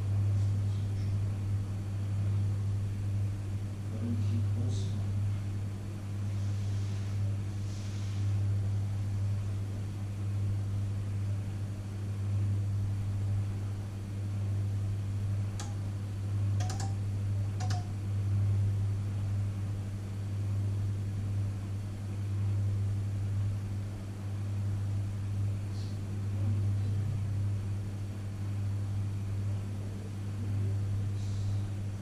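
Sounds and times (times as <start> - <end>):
microwave oven humming: 0.0 - 32.0
faint clicks: 15.6 - 15.8, 16.6 - 17.0, 17.6 - 17.9.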